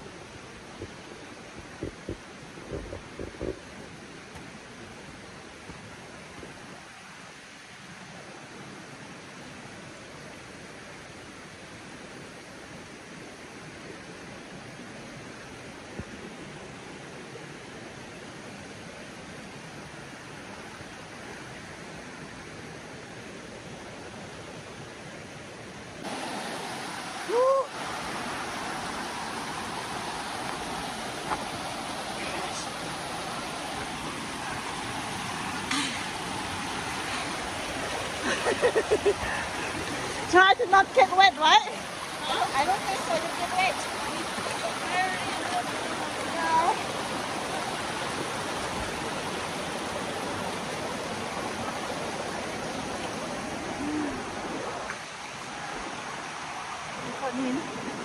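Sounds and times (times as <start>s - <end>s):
creek flowing over stones: 0.0s - 58.0s.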